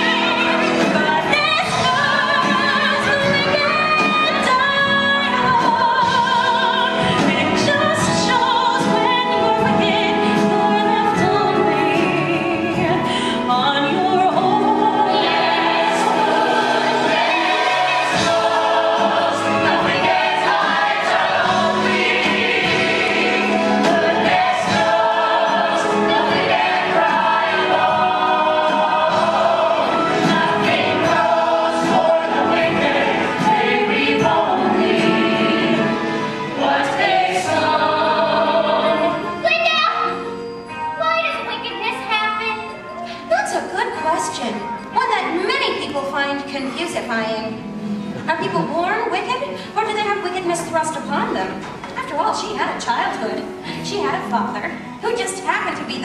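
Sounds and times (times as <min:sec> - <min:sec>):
ensemble singing in chorus: 0:00.0 - 0:39.4
pit orchestra: 0:00.0 - 0:56.0.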